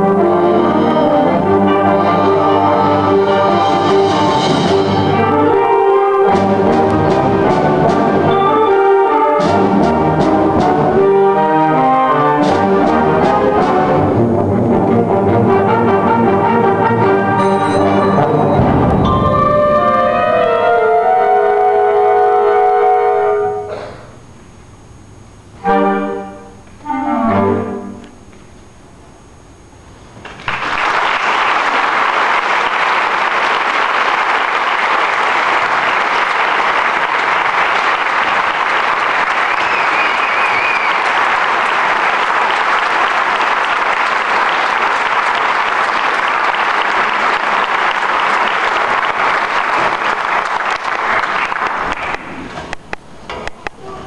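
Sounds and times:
concert band playing: 0.0 - 24.0, 25.6 - 28.2
audience applauding: 30.2 - 52.8.

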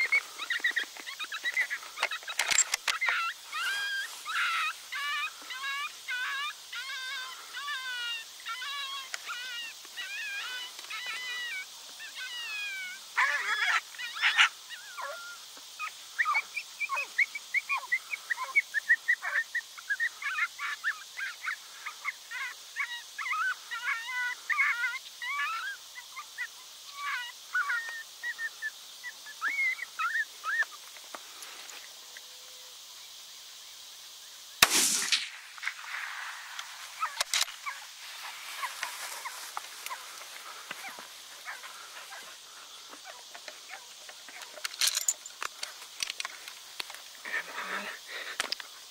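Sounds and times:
coyote yips and barks: 0.0 - 30.8
rifle shot: 34.6 - 36.2
faint sharp cracks: 34.6 - 37.6.

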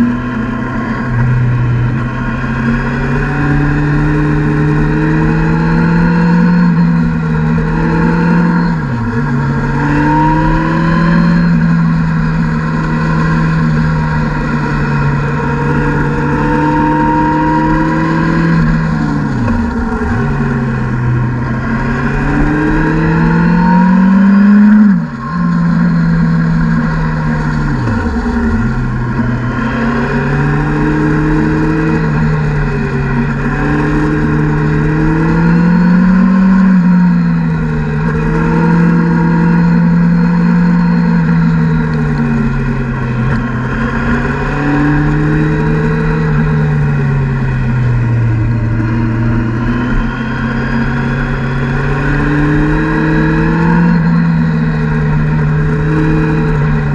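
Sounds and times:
motorcycle engine revving: 0.0 - 56.9.

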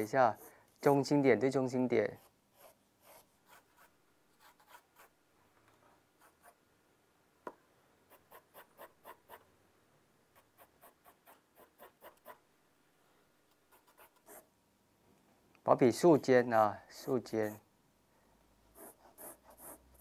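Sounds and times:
pencil scratching on paper: 0.0 - 1.1, 2.1 - 5.2, 6.2 - 6.6, 8.1 - 9.5, 10.3 - 12.4, 13.7 - 14.5, 18.8 - 20.0.

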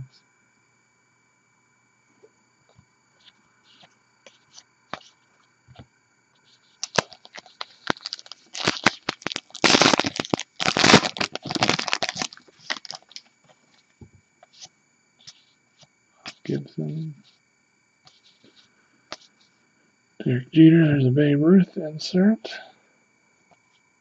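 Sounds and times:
foil wrapper crinkling: 6.7 - 13.8.

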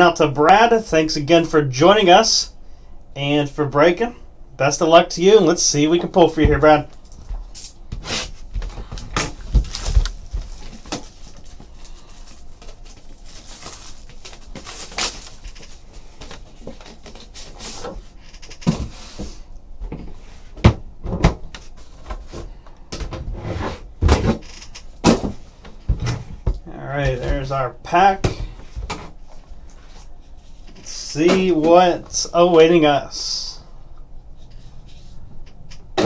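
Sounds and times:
plastic rustling: 6.9 - 18.8.

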